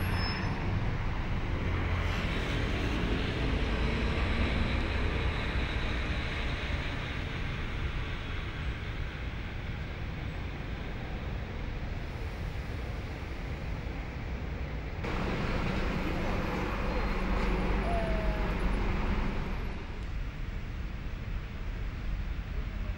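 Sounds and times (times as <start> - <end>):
steady low rumble: 13.8 - 22.9
vehicle passing: 15.0 - 20.0.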